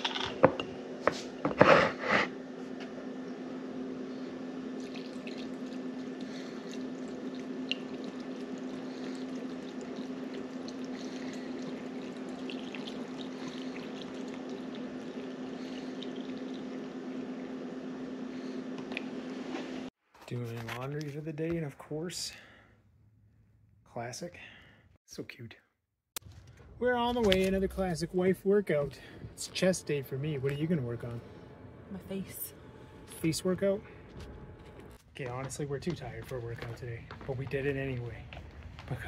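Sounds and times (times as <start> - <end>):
liquid pouring into glass jar: 4.8 - 16.9.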